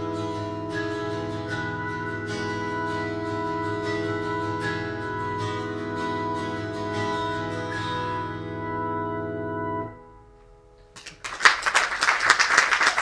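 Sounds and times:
sustained organ-like keyboard chord: 0.0 - 11.0
audience applause: 11.0 - 13.0.

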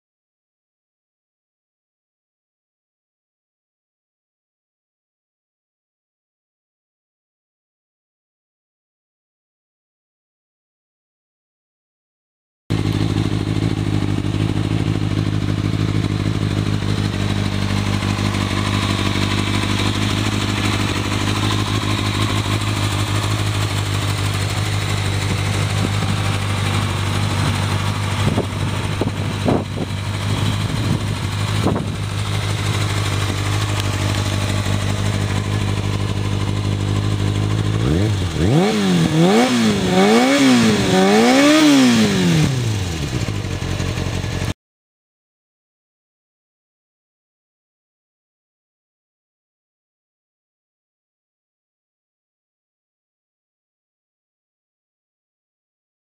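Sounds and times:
motorcycle engine idling and revving: 12.7 - 44.6.

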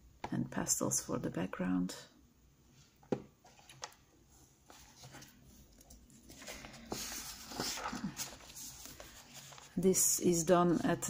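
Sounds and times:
paper page turning: 4.7 - 11.0.

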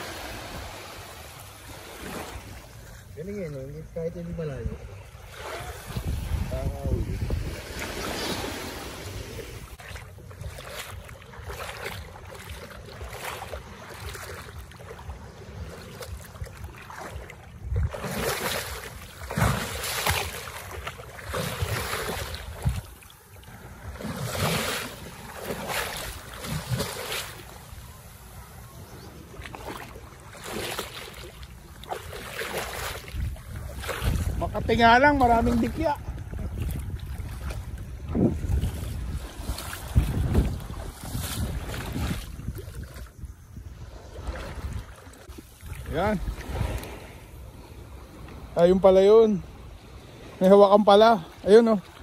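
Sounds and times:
seawater sloshing and splashing: 0.0 - 52.0
wind noise on microphone: 4.1 - 12.1, 12.9 - 20.2, 21.2 - 24.8, 32.2 - 47.3.

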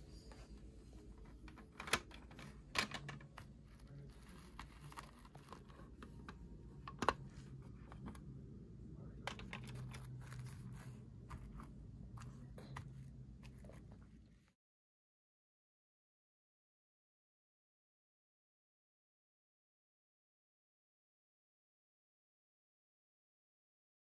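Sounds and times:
faint low hum: 0.0 - 14.6.

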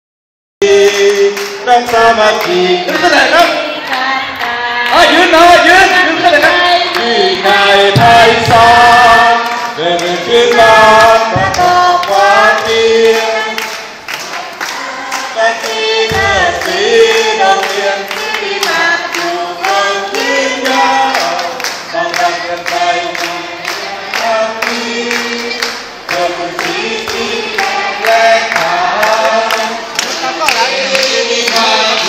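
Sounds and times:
crowd singing together: 0.6 - 32.0
hands clapping in time: 9.4 - 32.0.

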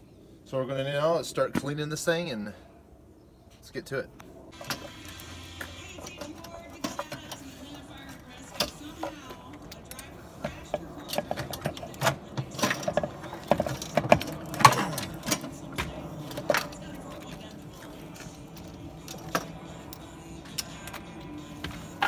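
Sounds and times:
metal clamp clicks and clanks: 4.6 - 15.6, 16.2 - 21.2
cordless drill unscrewing: 4.6 - 21.2.

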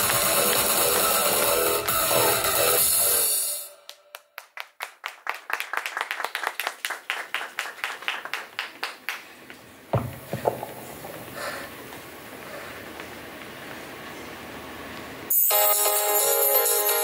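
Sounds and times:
audience clapping: 0.0 - 3.0, 3.9 - 9.7
loud thump: 9.9 - 11.7.

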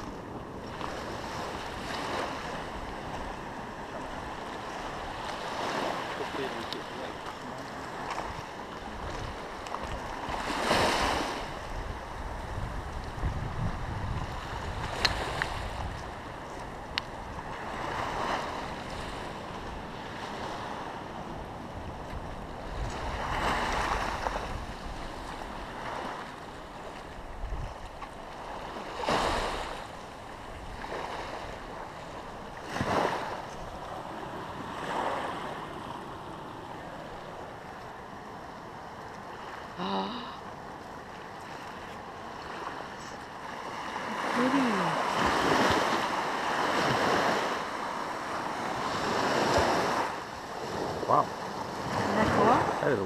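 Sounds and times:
sea surf washing: 0.0 - 53.0
wind on microphone: 8.0 - 37.6.

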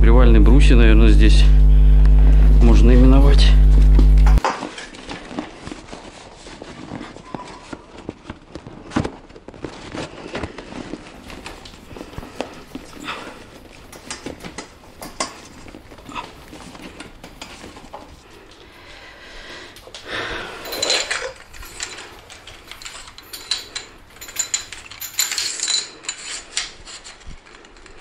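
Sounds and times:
metal tubes knocking and clinking: 20.6 - 27.2.

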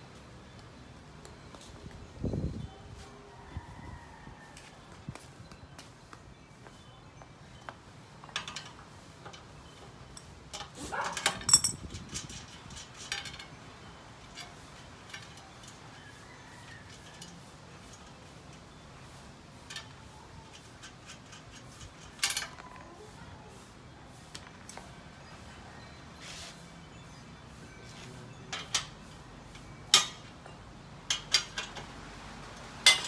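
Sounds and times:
wrench and bolts clinking on metal: 8.2 - 18.7, 19.6 - 22.8, 27.9 - 33.0
ringing metal clank: 11.3 - 12.0.

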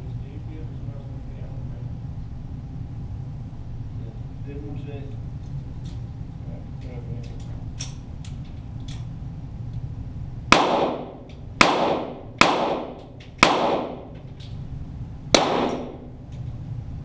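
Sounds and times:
pistol shots echoing: 10.5 - 14.2, 15.3 - 16.1.

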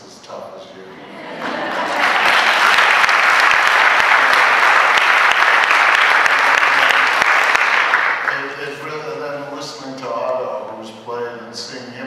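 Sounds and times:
large audience applauding: 1.4 - 8.7.

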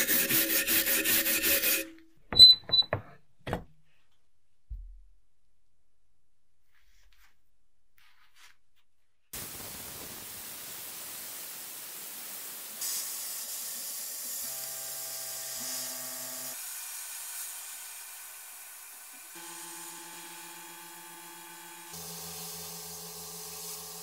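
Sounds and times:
sandblaster hissing: 9.4 - 20.0, 21.9 - 24.0.

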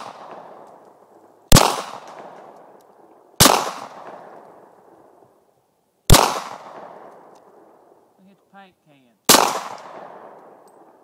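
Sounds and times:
pistol shots echoing: 1.5 - 4.7, 6.1 - 7.8, 9.3 - 11.0.

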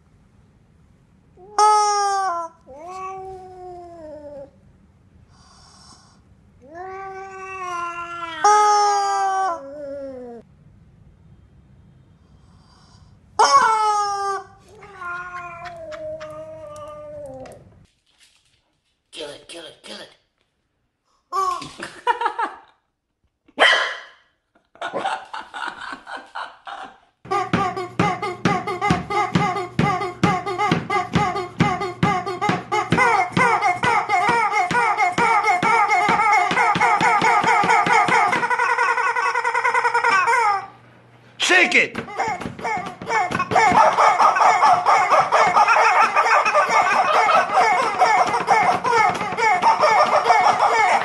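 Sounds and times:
rubber chicken toy screaming: 1.5 - 2.6, 7.6 - 9.6, 13.4 - 15.2, 42.1 - 51.0
puppy barking: 23.6 - 24.2, 43.3 - 49.0, 49.6 - 51.0
puppy squealing: 42.1 - 51.0.

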